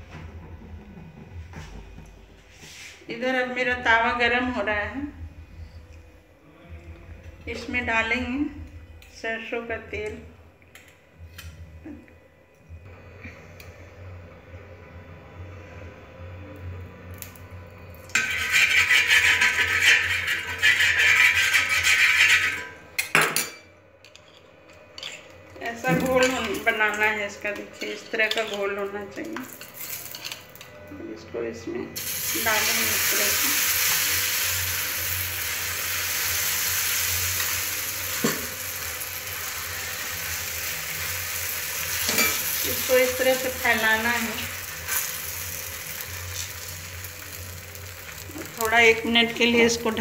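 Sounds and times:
oil sizzling on hot iron: 0:17.1 - 0:22.8, 0:32.0 - 0:50.0.

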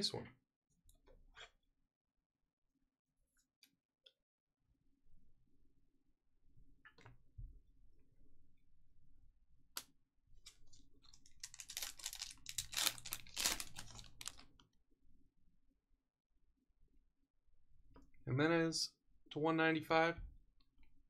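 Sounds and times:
cards and packaging crackling: 0:10.5 - 0:14.6.

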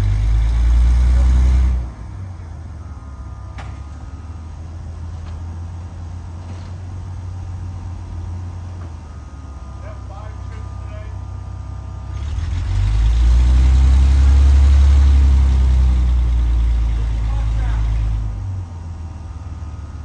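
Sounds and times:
low running hum: 0:00.0 - 0:20.0
train low rumble: 0:00.0 - 0:20.0.

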